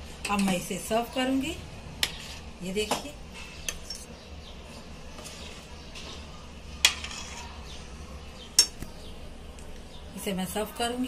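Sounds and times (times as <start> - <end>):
ladle stirring thick curry: 2.0 - 2.6, 3.5 - 8.0.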